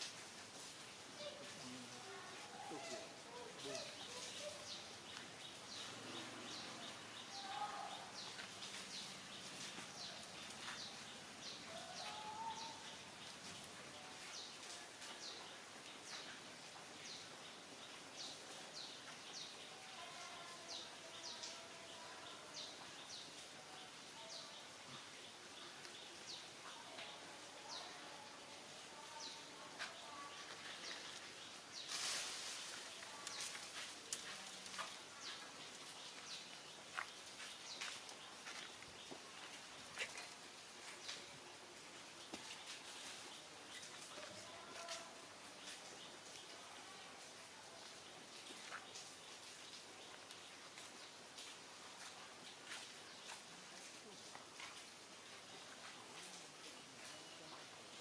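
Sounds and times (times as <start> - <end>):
birds chirping: 1.2 - 46.7.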